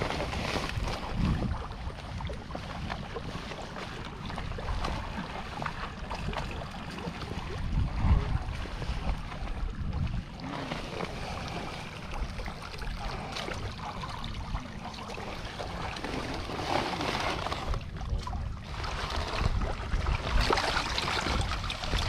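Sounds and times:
shallow water sloshing: 0.0s - 22.0s.

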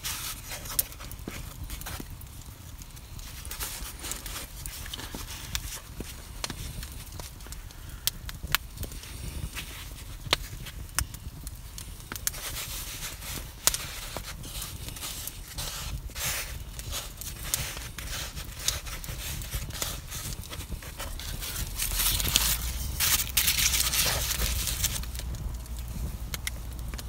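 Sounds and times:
baking paper rustling: 0.0s - 2.2s, 3.0s - 8.0s, 8.9s - 10.9s, 12.3s - 27.0s.

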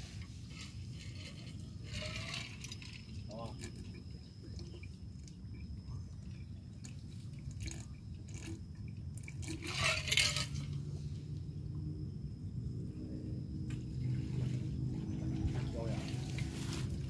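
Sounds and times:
steady low rumble: 10.2s - 17.0s.

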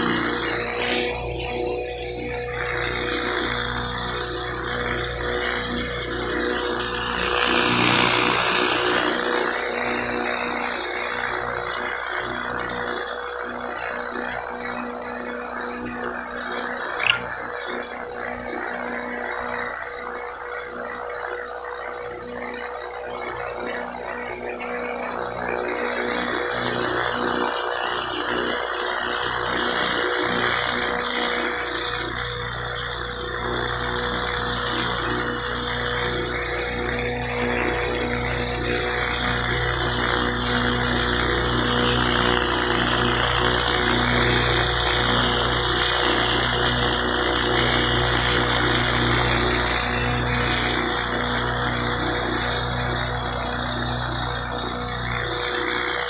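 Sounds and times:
electric motor whine: 0.0s - 56.0s
rushing helicopter rotor: 0.0s - 56.0s.

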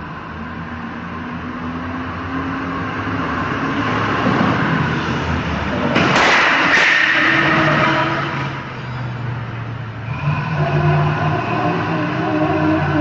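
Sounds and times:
sharp crashes: 5.9s - 8.7s.

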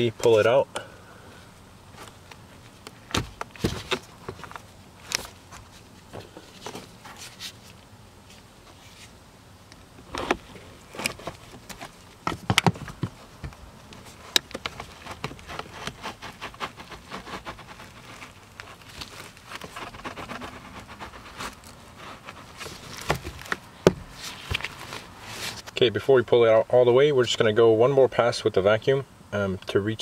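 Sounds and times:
filter scraping and crackling: 13.9s - 25.8s.

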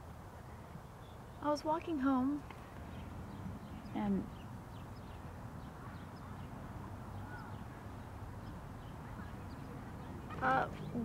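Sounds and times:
faint bird chirps: 2.8s - 11.0s.

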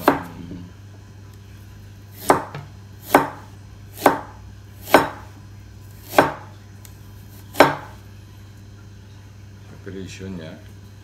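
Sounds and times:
knife chopping on cutting board: 0.0s - 0.5s, 2.1s - 5.4s, 6.0s - 6.5s, 7.4s - 8.0s.

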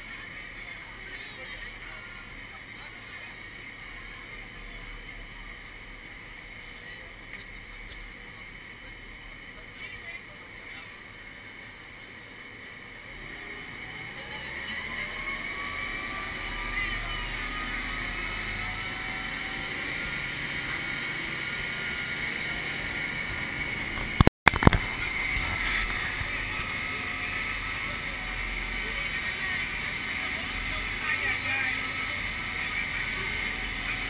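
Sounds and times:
faint whine: 0.0s - 34.0s
truck engine: 0.0s - 34.0s
water noise: 11.0s - 34.0s
loud crackle: 16.4s - 30.1s.

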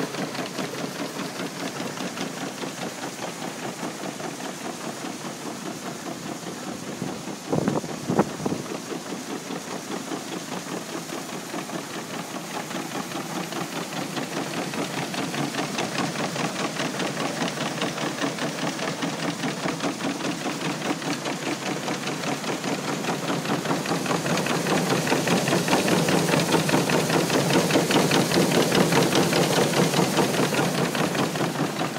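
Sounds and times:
hiss of moving air and grain: 0.1s - 31.9s.

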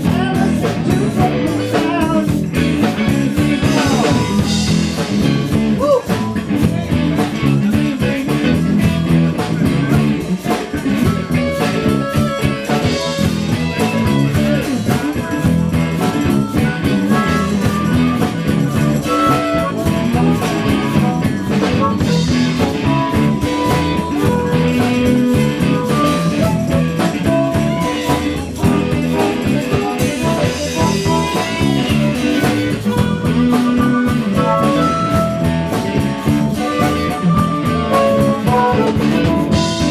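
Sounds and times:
bass guitar: 0.0s - 39.9s
drum kit: 0.0s - 39.9s
electric guitar: 0.0s - 39.9s
harmonica melody notes: 11.0s - 39.9s.

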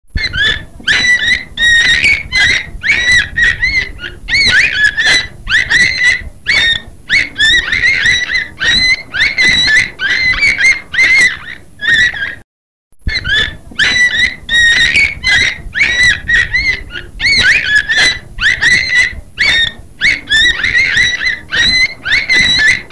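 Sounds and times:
whale chirps and squeals: 0.2s - 12.4s, 13.1s - 22.9s.

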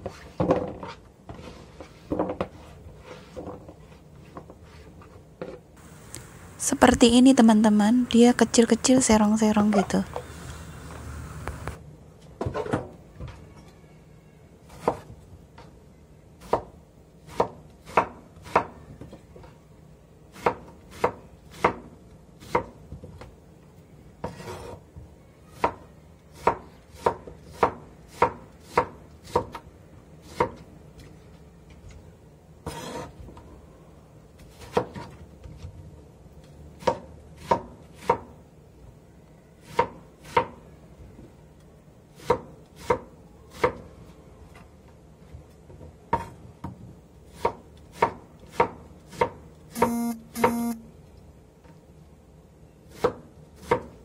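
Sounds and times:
knife scraping board: 0.0s - 5.1s, 24.2s - 24.8s, 32.6s - 33.2s
knife chopping on wooden board: 16.4s - 16.7s, 17.3s - 18.7s, 20.4s - 22.7s, 25.6s - 29.6s, 30.2s - 30.6s, 36.8s - 38.3s, 42.2s - 43.8s, 47.3s - 50.7s, 52.9s - 53.9s.

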